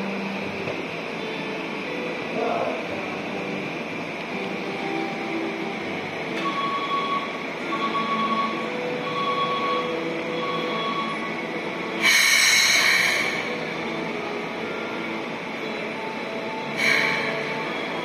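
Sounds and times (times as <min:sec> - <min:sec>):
electric train running: 0:00.0 - 0:18.0
electronic beep: 0:06.4 - 0:11.3.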